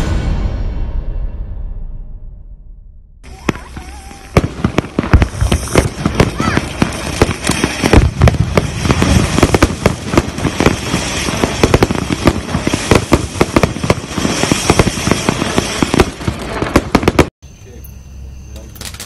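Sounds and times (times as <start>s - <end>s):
firework crackling and popping: 3.2s - 17.3s, 18.7s - 19.0s
firework fountain hiss: 3.2s - 17.3s.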